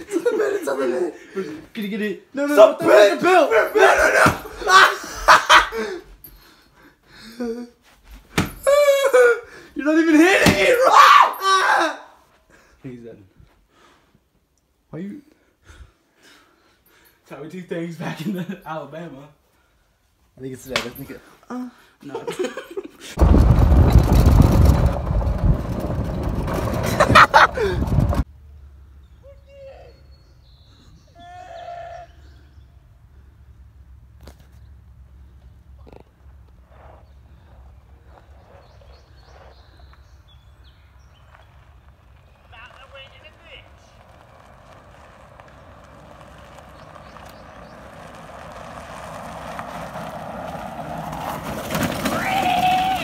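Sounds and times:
golf cart rumbling over gravel: 23.2s - 28.3s, 36.7s - 53.0s
faint distant calls: 36.7s - 50.0s.

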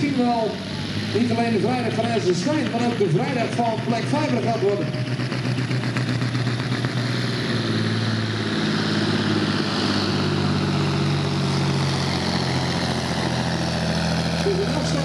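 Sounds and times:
diesel truck engine under load: 0.0s - 15.0s.

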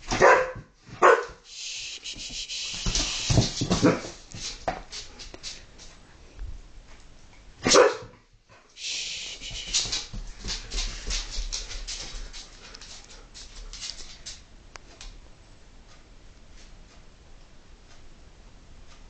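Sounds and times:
dog barking sharply: 0.1s - 1.4s, 7.6s - 8.1s
dog claws clicking on tile: 9.6s - 15.2s.

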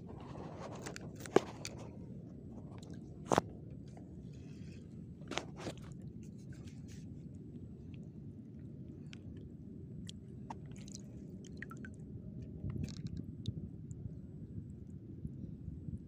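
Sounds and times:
steady low rumble: 0.0s - 16.0s
clicks and knocks of fishing rig: 0.6s - 1.9s.

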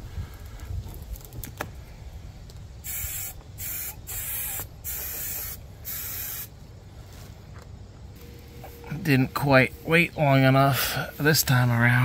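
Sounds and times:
aerosol spray hissing: 2.8s - 6.5s.

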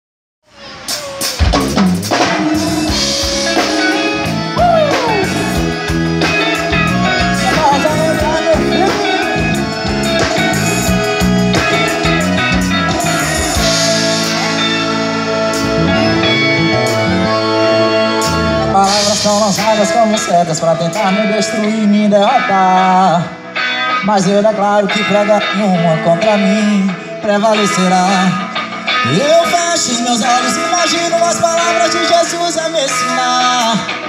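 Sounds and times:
live band playing instrumental: 0.5s - 34.0s
falling pitch glide: 8.7s - 19.3s.

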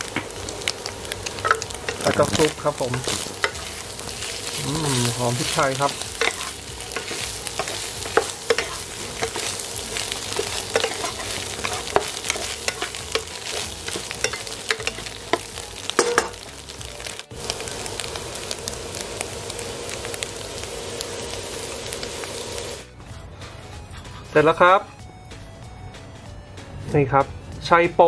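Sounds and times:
food sizzling in a wok: 0.0s - 22.9s
spatula scraping and clacking on pan: 1.2s - 16.5s.

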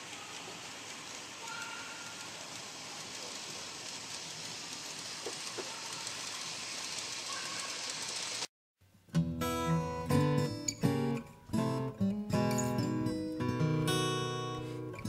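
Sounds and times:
model train rolling on track: 0.0s - 8.5s.

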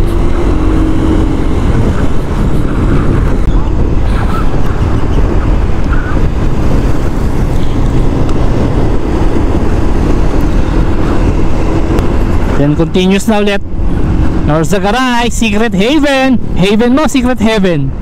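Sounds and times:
motorcycle engine running: 0.0s - 13.0s
wind rush and road noise: 0.0s - 18.0s.

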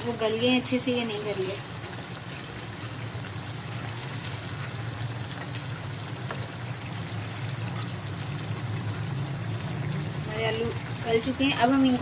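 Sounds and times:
curry bubbling in pot: 0.0s - 12.0s
spatula stirring and clicking: 1.8s - 7.0s.

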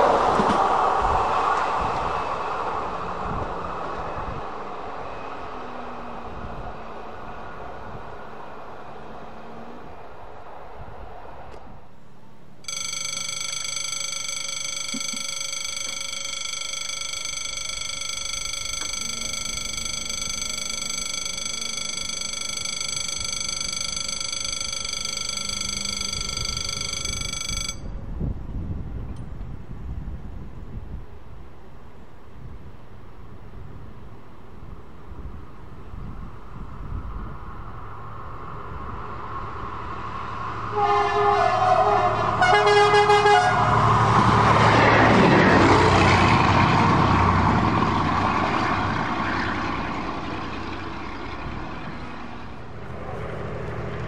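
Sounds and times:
train passing: 0.0s - 30.4s, 31.6s - 54.0s
level crossing warning bell: 12.6s - 28.0s.

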